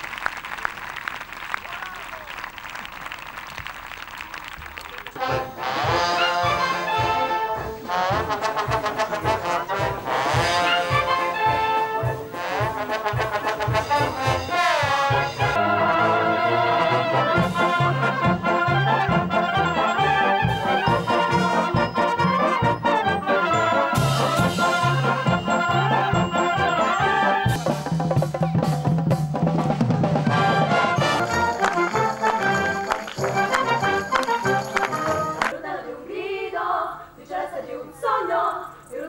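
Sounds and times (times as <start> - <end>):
trumpet: 5.2 - 28.7, 30.0 - 35.5
trombone: 5.2 - 35.5
brass band playing: 5.2 - 35.6.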